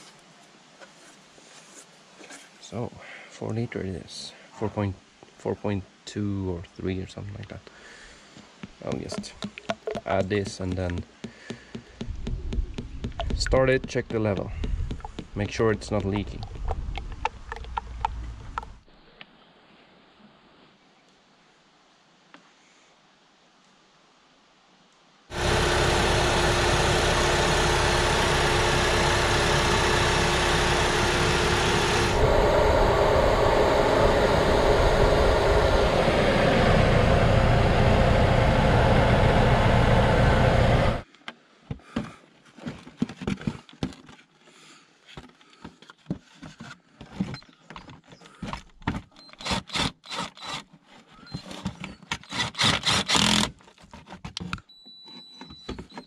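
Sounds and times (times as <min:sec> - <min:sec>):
car engine running: 0:25.3 - 0:41.0.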